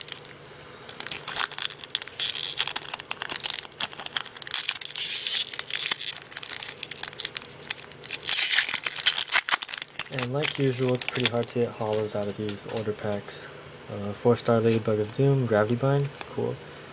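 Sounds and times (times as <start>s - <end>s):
foil wrapper crinkling: 0.0s - 13.2s.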